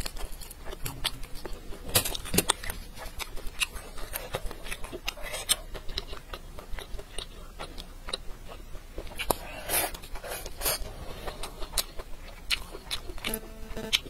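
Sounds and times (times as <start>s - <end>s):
person chewing: 0.0s - 14.0s.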